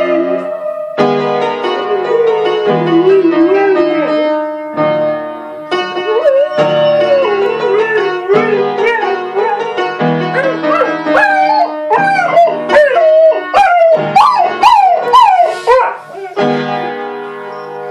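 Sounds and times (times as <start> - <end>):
dog howling: 0.0 - 1.0, 1.6 - 4.2, 6.1 - 9.8, 10.4 - 16.4
piano: 0.0 - 17.9.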